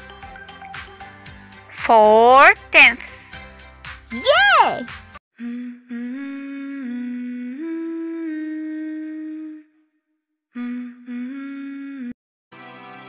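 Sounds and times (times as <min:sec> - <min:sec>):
person humming: 0:05.4 - 0:09.7, 0:10.6 - 0:12.2.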